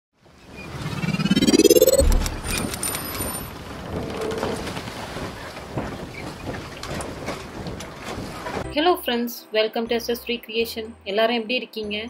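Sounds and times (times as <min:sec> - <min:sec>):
brief tone: 0:00.6 - 0:03.0.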